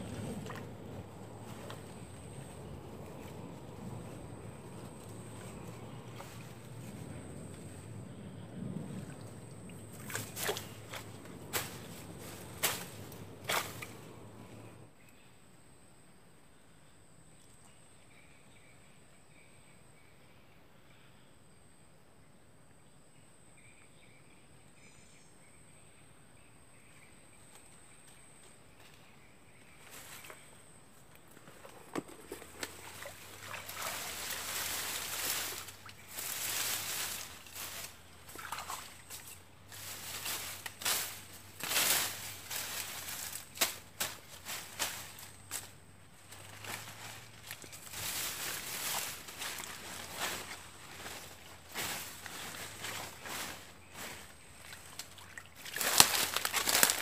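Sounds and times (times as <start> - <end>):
stick swishing through grass in water: 0.0 - 7.0, 9.0 - 14.7, 31.5 - 45.7, 46.3 - 57.0
faint high insect whine: 0.0 - 57.0.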